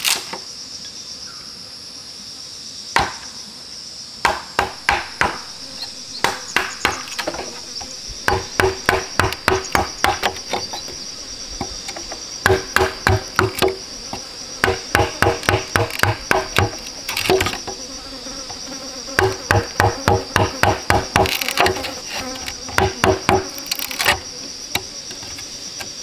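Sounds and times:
high insect buzz: 0:00.0 - 0:26.0
hollow knocks inside bamboo tube: 0:08.2 - 0:10.8, 0:11.6 - 0:13.8.

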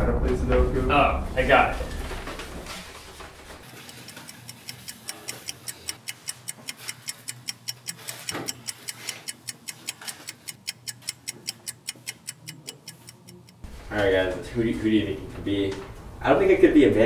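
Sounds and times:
clock ticking: 0:03.1 - 0:13.7.

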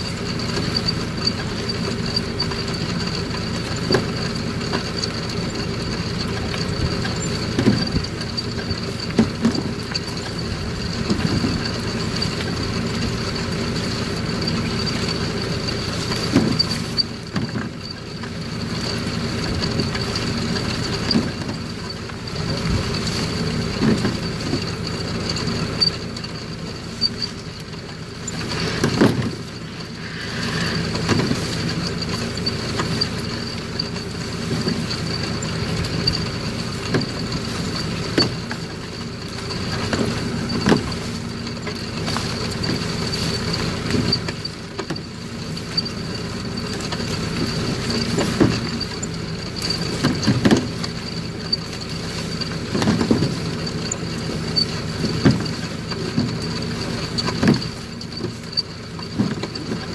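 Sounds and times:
machine engine running: 0:00.0 - 0:59.9
high whine: 0:28.0 - 0:33.6.

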